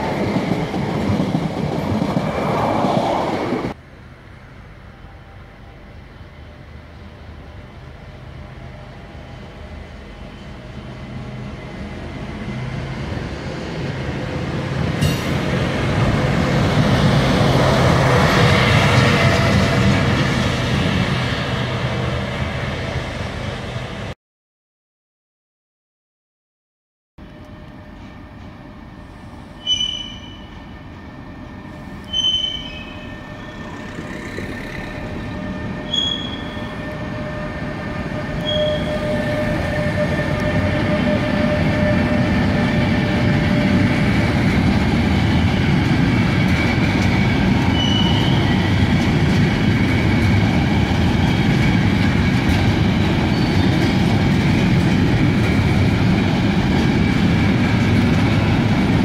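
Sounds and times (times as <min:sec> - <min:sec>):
freight train passing: 0:00.0 - 0:24.2, 0:27.2 - 0:59.0
high squeaks: 0:29.6 - 0:30.6, 0:32.0 - 0:37.2, 0:38.4 - 0:41.4.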